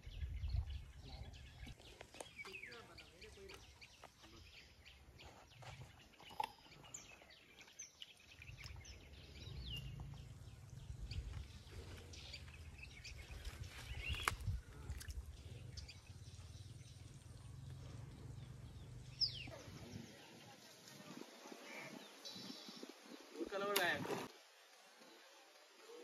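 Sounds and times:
small birds chirping: 0.0 - 26.0
low rumble: 8.8 - 19.5.

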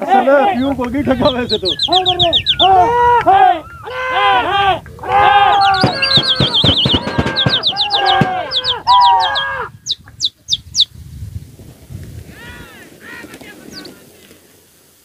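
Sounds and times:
people calling long high cries: 0.0 - 10.1, 12.2 - 14.2
downward-sliding whistles: 1.2 - 2.9, 5.4 - 9.4.

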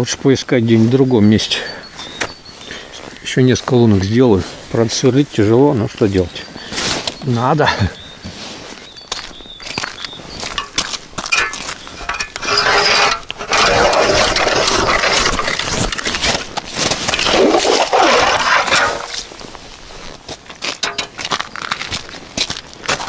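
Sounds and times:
footsteps crunching on wet snow: 1.8 - 23.0
ice auger grinding through ice: 12.0 - 19.3.

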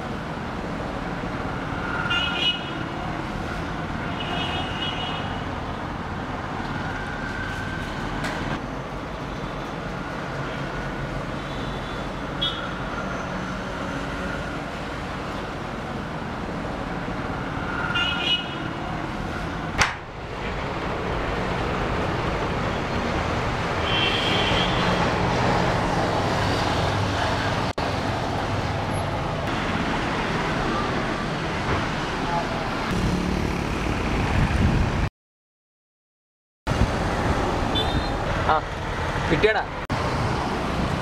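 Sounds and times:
road traffic noise: 0.0 - 35.1, 36.7 - 41.0
sharp click: 19.8 - 20.0
vehicle horn toots: 23.8 - 24.9, 37.7 - 38.2.

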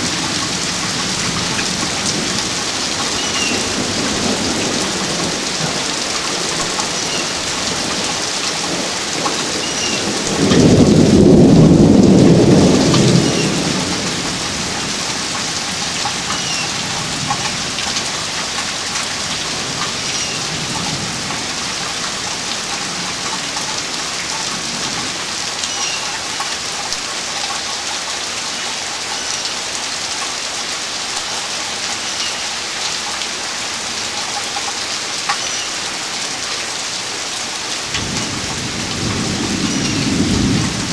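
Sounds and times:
thunder clap rumbling: 0.0 - 23.7, 37.9 - 40.9
steady rain: 0.0 - 40.9.

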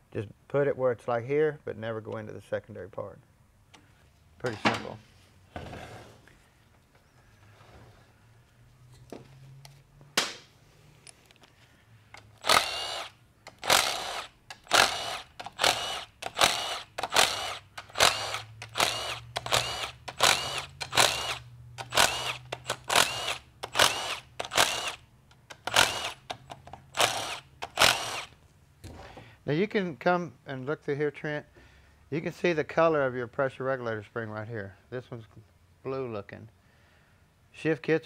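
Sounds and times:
power driver spinning: 12.2 - 28.4.

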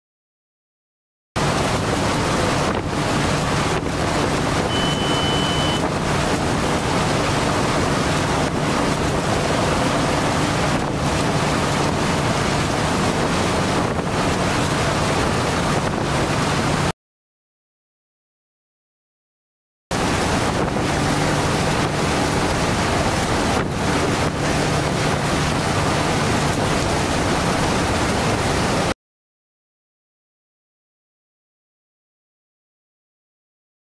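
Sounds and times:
wind on microphone: 1.4 - 4.8, 5.7 - 16.9, 19.9 - 28.9
short high beep: 4.7 - 5.9.

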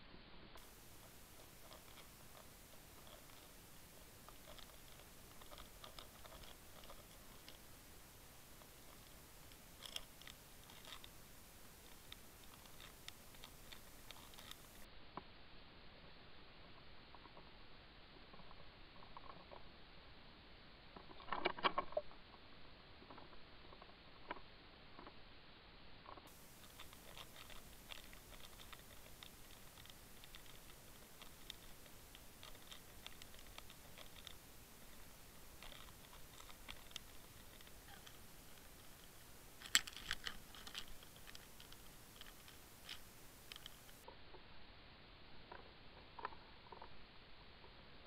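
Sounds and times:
underwater clicks and crackles: 4.2 - 7.7, 8.6 - 11.1, 26.6 - 44.0.

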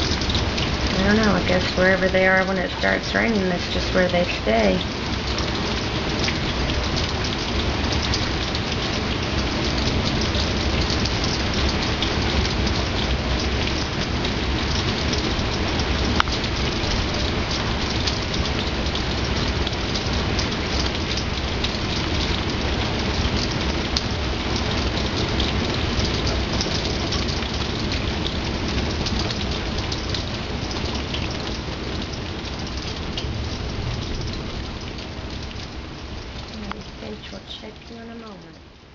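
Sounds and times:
steady rain falling: 0.0 - 38.9.

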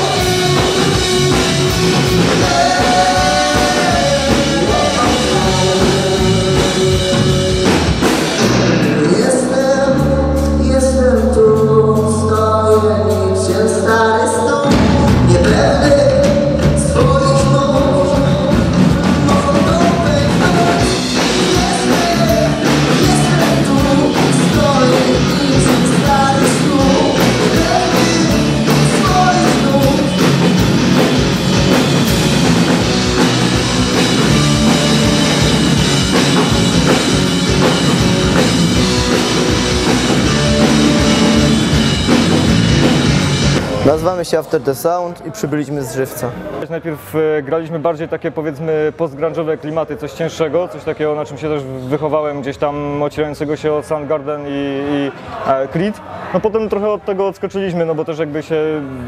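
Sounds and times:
sung lead vocal: 0.0 - 42.9
electric guitars: 0.0 - 44.0
bass guitar: 0.0 - 44.2
drum kit: 0.0 - 44.3.

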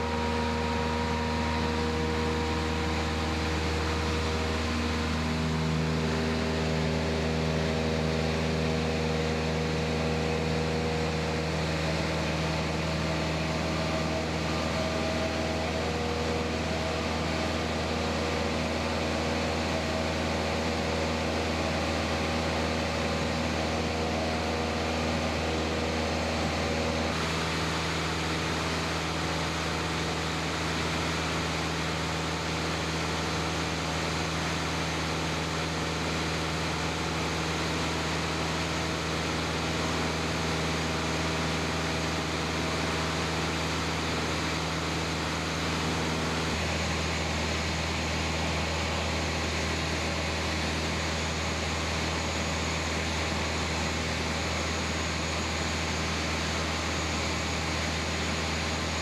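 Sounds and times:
propeller plane engine drone: 0.0 - 59.0.

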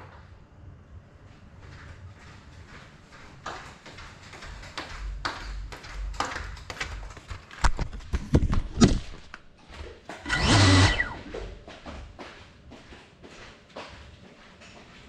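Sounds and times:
slippered footsteps on tile floor: 1.3 - 15.0
drone motors whirring: 10.2 - 11.6.

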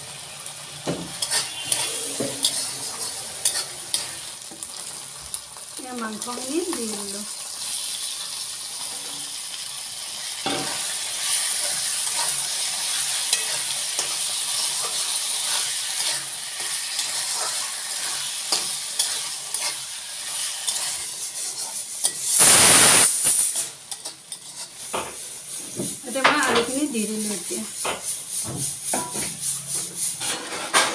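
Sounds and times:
meat sizzling in a wok: 0.0 - 30.9
metal spatula scraping: 1.0 - 4.8, 10.4 - 30.9
loud hiss: 22.0 - 23.8.

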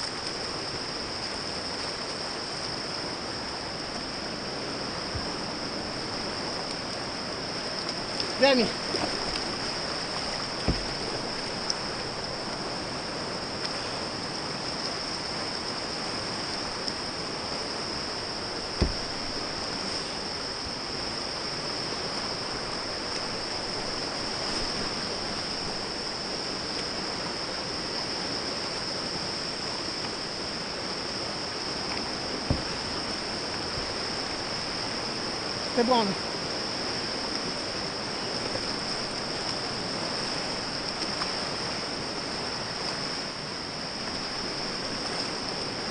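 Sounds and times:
whitewater river rushing: 0.0 - 45.9
sharp knocks: 18.8 - 19.1.

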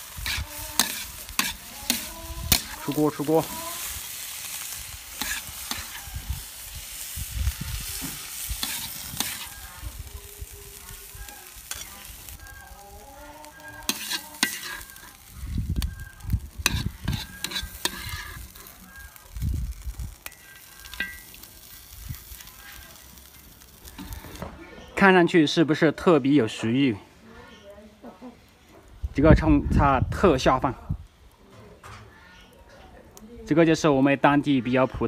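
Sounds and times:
metal spatula scraping a wok: 0.0 - 9.9, 11.3 - 15.4, 16.2 - 19.0, 19.7 - 24.4
wok sizzling: 0.0 - 31.4.

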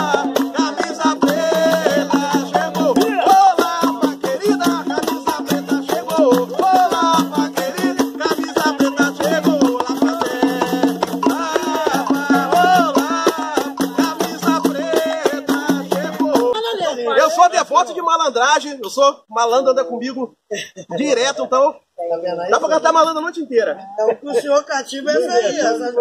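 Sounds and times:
conga drum played by hand: 0.0 - 16.6
shaker rattling: 0.0 - 16.6
voices singing: 0.0 - 17.6.

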